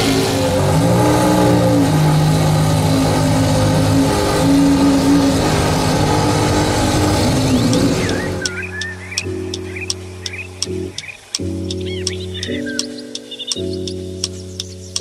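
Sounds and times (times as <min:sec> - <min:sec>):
sports car engine gently revving: 0:00.0 - 0:08.5.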